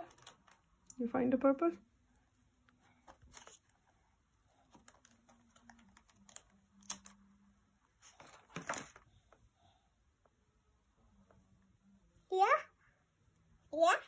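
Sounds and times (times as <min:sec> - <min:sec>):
stickers peeled with clicks and crinkles: 0:00.0 - 0:01.0, 0:02.6 - 0:09.4.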